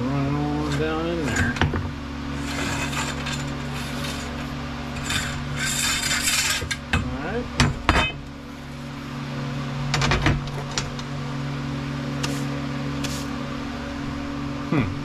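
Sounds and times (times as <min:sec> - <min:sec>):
metal shaft scraping inside tube: 0:02.3 - 0:06.8.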